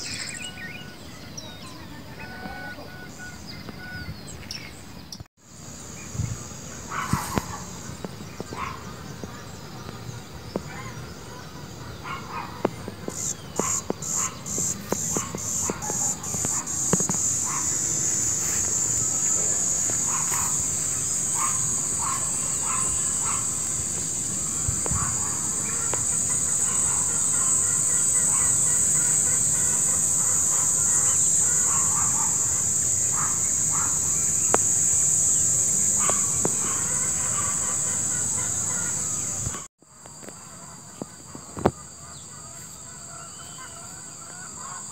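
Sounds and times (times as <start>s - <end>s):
high-pitched insect buzz: 5.5s - 7.9s, 13.1s - 44.8s.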